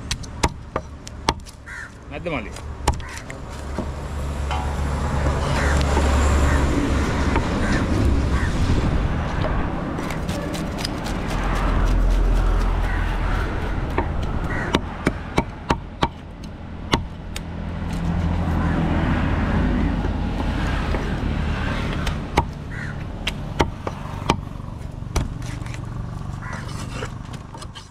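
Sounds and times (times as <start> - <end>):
low rumble: 3.6 - 18.4.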